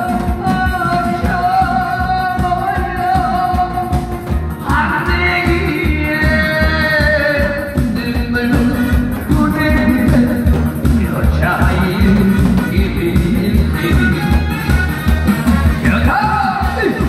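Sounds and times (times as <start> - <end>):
steady beat: 2.4 - 17.0
barrel drums struck: 8.6 - 13.8.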